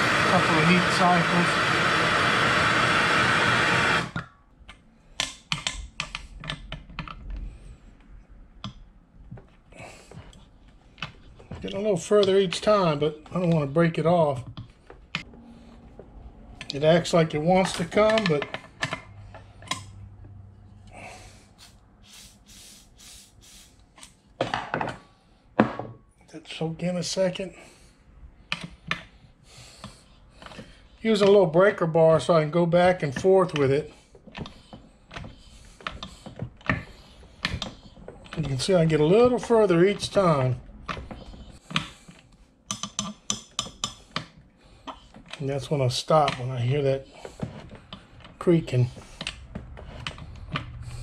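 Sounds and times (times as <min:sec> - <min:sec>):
gas torch hissing: 0:00.0 - 0:04.2, 0:21.0 - 0:23.8
aerosol can spraying hisses: 0:21.6 - 0:23.8.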